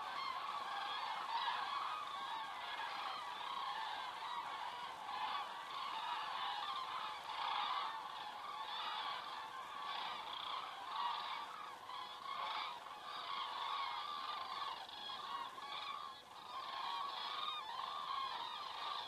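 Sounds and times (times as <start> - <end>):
cranes trumpeting calls: 0.0 - 19.0.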